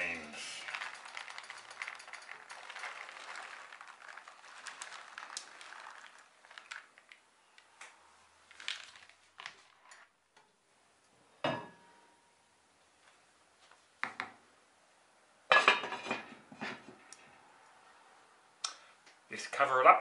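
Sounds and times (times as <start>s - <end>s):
beans rattling into a pot: 0.0s - 7.7s, 8.5s - 10.1s
beans clicking while stirred: 0.0s - 10.1s.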